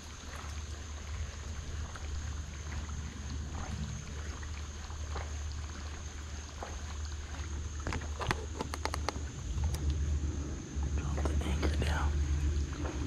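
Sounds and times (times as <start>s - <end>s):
electric boat motor hum: 0.0s - 13.0s
rod and reel clicks and knocks: 7.8s - 9.9s.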